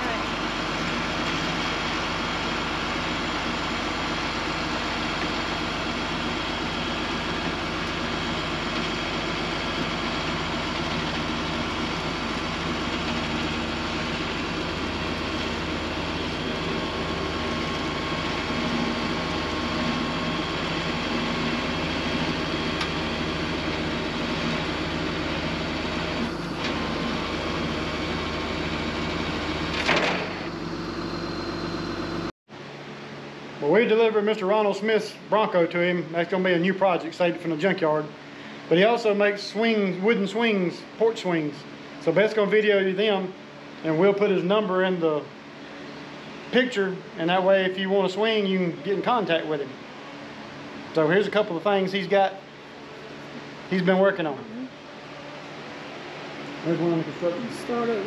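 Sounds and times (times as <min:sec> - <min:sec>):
truck engine idling: 0:00.0 - 0:32.3.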